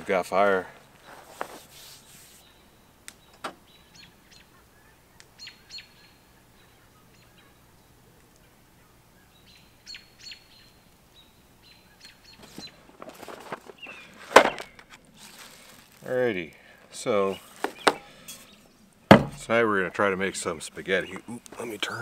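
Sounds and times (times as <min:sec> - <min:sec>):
bird chirps: 0:02.2 - 0:12.8, 0:13.7 - 0:14.8.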